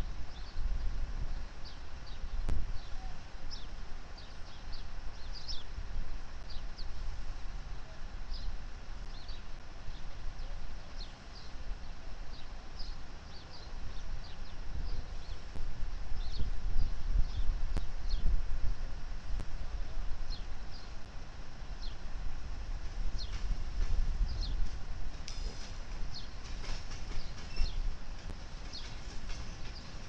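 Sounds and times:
small birds chirping: 0:00.0 - 0:18.4, 0:20.2 - 0:22.1, 0:23.1 - 0:23.6, 0:24.2 - 0:30.0
diesel locomotives rumbling: 0:22.3 - 0:30.0.

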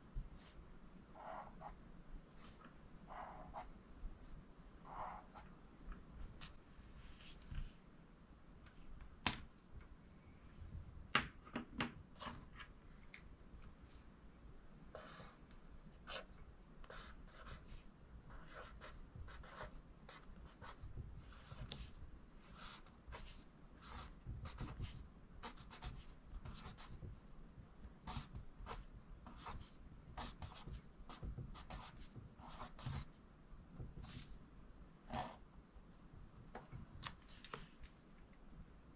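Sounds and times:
pencil writing on paper: 0:16.9 - 0:17.7, 0:18.3 - 0:21.9, 0:22.5 - 0:27.0, 0:28.1 - 0:33.1.

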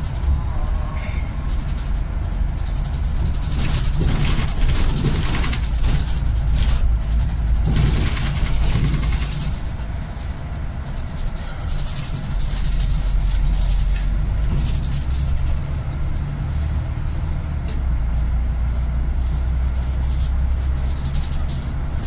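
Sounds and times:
vehicle engine and road drone: 0:00.0 - 0:22.0.

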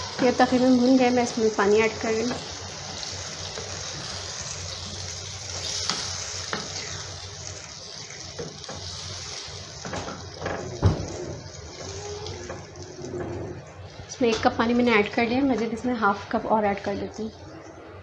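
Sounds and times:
water hissing in hot pan: 0:00.0 - 0:14.2.

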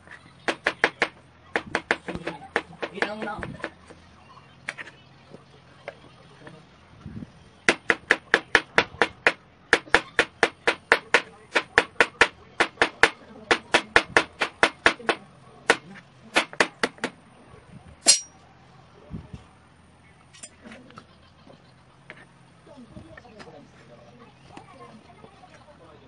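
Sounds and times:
knife chopping on plastic board: 0:00.4 - 0:04.0, 0:07.7 - 0:17.2
sharp knife clack: 0:18.0 - 0:18.3.

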